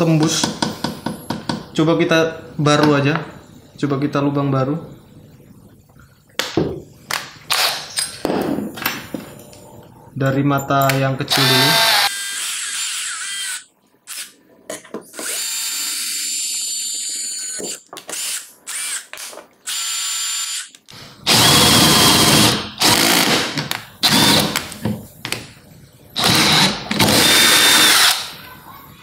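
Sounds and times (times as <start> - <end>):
drill drilling through steel: 11.3 - 13.6, 21.3 - 24.6, 26.2 - 28.3
drill motor spinning freely: 11.3 - 14.2, 15.2 - 20.7, 21.3 - 24.6, 26.2 - 28.3.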